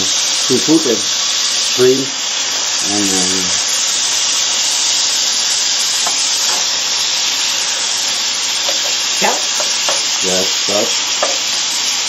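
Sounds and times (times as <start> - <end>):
food sizzling in frying pan: 0.0 - 12.0
turner tapping and scraping: 6.0 - 6.8, 7.6 - 10.2, 11.0 - 11.6.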